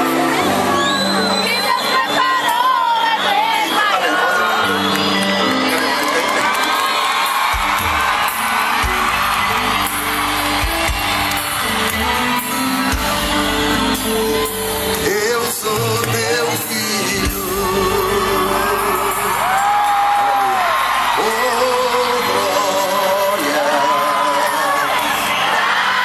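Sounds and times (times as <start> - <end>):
amplified instrumental backing: 0.0 - 26.0
man singing into a microphone: 14.8 - 25.6.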